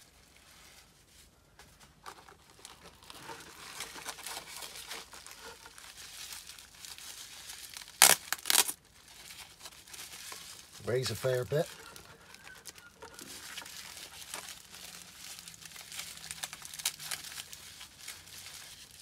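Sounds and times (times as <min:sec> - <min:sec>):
plastic packaging rustling: 0:00.2 - 0:19.0
loud sharp crackles: 0:07.8 - 0:08.8.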